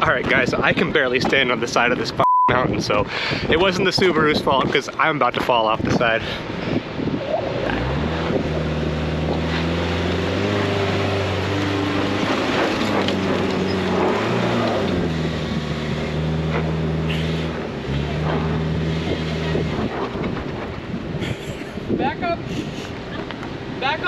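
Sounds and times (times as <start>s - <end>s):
car engine at high revs: 6.4s - 24.0s
tyres spinning in dirt: 7.4s - 21.2s.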